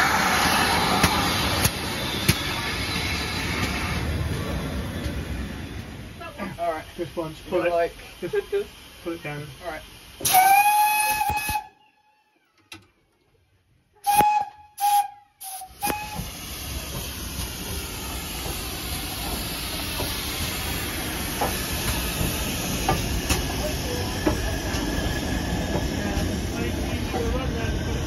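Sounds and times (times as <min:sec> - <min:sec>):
steam hissing: 0:00.0 - 0:11.7, 0:14.0 - 0:28.0
steam locomotive whistle blasts: 0:10.2 - 0:12.0, 0:14.0 - 0:16.3.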